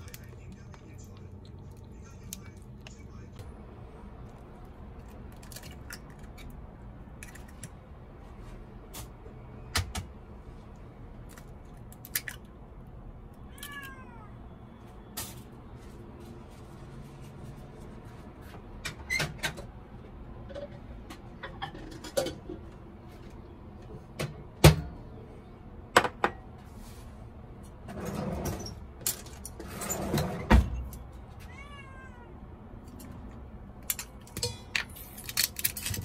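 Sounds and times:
cat meowing: 0:13.5 - 0:14.4, 0:31.4 - 0:32.4.

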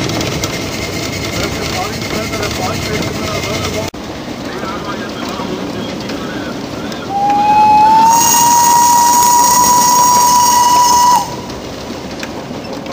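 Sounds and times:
train running noise: 0:00.0 - 0:12.9
steam locomotive whistle: 0:07.0 - 0:11.8.

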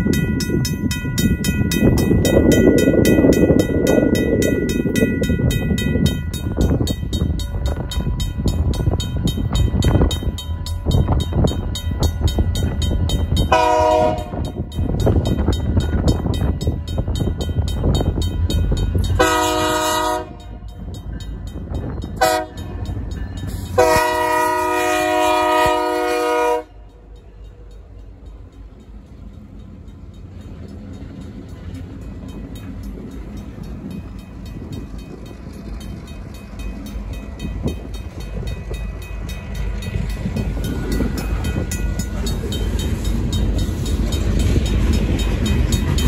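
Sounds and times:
crossing bell ringing: 0:00.0 - 0:46.0
locomotive horn blasts: 0:13.4 - 0:14.6, 0:19.1 - 0:20.6, 0:22.2 - 0:22.8, 0:23.7 - 0:26.8.

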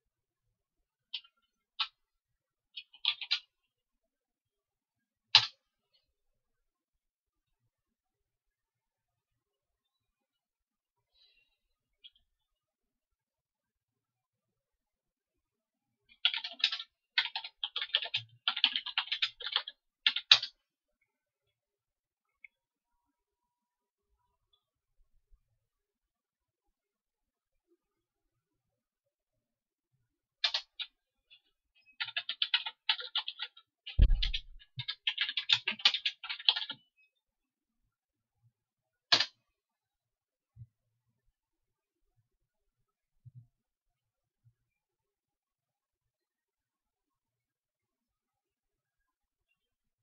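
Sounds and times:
computer keyboard typing: 0:02.7 - 0:03.5, 0:16.1 - 0:20.6, 0:30.4 - 0:36.8.

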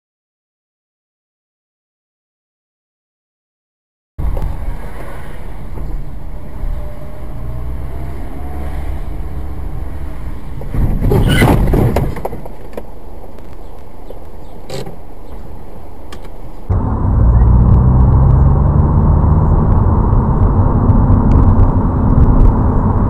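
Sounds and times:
rush of noise: 0:04.2 - 0:12.3, 0:15.2 - 0:23.0
car engine and tyre rumble: 0:04.2 - 0:23.0.

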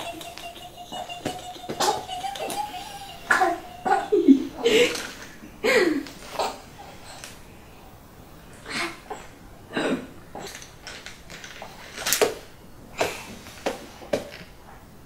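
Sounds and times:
soft voice sounds: 0:00.0 - 0:05.1.

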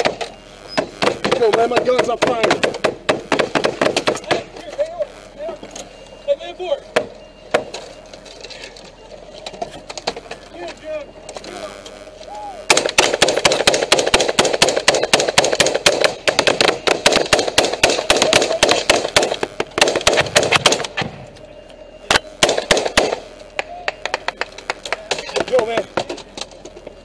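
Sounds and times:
rapid automatic gunfire: 0:12.7 - 0:20.9, 0:22.4 - 0:23.2.

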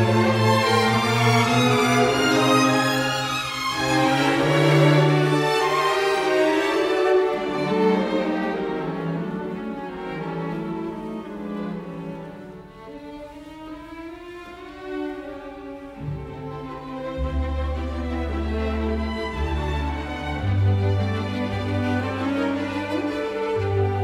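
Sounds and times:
slow bowed strings music: 0:00.0 - 0:24.0.

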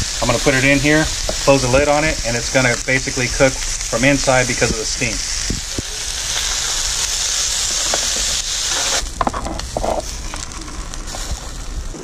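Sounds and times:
fish sizzling in oil: 0:00.0 - 0:12.0
metal spatula scraping griddle: 0:07.7 - 0:10.4.

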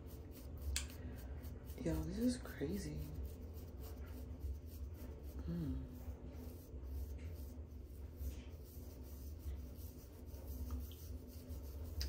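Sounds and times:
low steady hum: 0:00.0 - 0:12.0.

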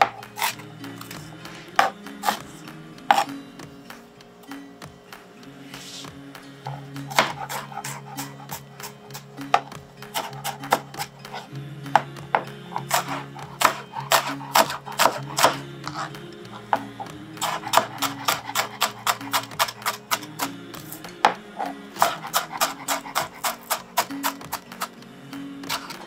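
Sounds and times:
background music low notes: 0:00.0 - 0:26.0
knife chopping on cutting board: 0:01.5 - 0:02.4, 0:03.1 - 0:03.3, 0:06.7 - 0:16.1, 0:17.4 - 0:20.6, 0:22.0 - 0:24.9.

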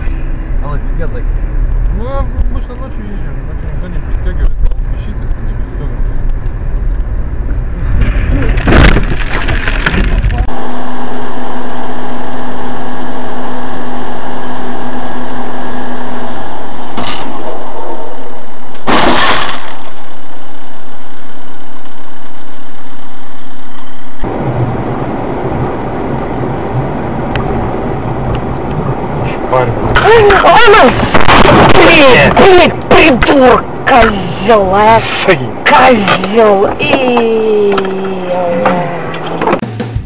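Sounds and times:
vehicle and road noise: 0:00.0 - 0:40.0
loud vehicle collision crashes: 0:07.9 - 0:10.4, 0:18.7 - 0:20.0
sharp crack: 0:18.7 - 0:20.2.

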